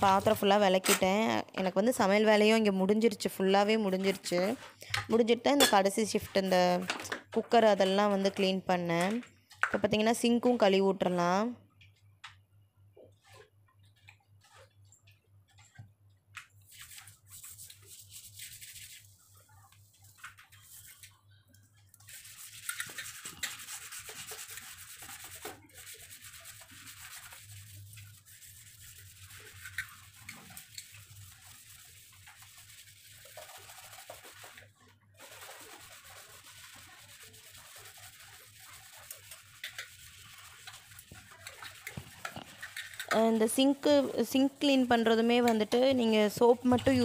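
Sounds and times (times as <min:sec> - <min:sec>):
scrubber scouring a steel sink: 0:00.0 - 0:00.6, 0:03.4 - 0:04.6, 0:16.7 - 0:21.1, 0:22.0 - 0:47.0.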